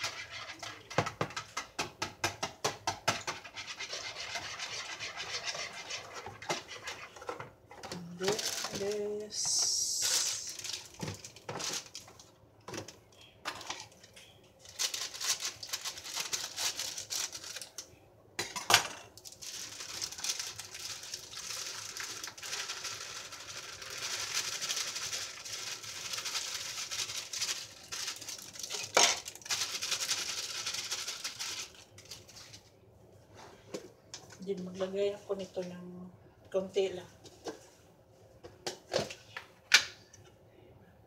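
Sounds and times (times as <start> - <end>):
plastic pouch crinkling: 8.2 - 12.3, 14.6 - 17.8, 19.2 - 32.7
dry mix pouring into bowl: 19.3 - 32.5.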